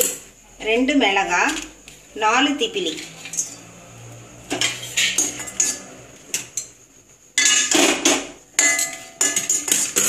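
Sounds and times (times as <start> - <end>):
steel spoon scraping a pan: 2.7 - 6.8, 8.6 - 10.0.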